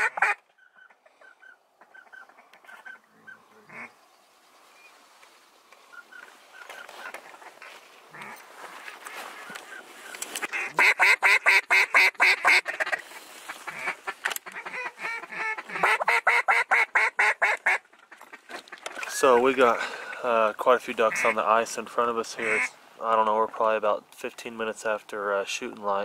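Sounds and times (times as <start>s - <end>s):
duck call quacks: 0.0s - 3.9s, 10.4s - 18.8s, 21.1s - 21.4s, 22.4s - 22.8s.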